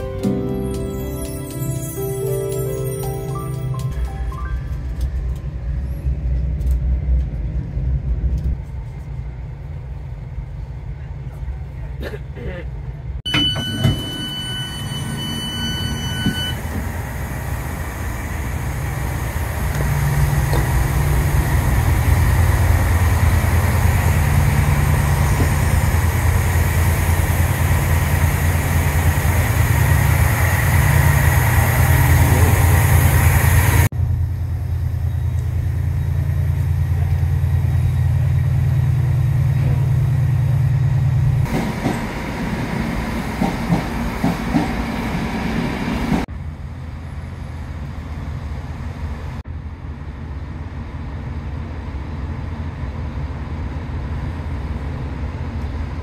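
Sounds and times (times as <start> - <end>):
diesel train engine idling: 4.0 - 45.6
door-warning beep: 13.3 - 16.6.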